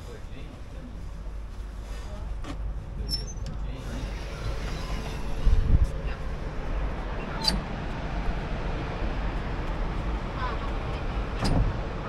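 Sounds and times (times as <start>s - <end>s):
wind buffeting microphone: 5.1s - 12.0s.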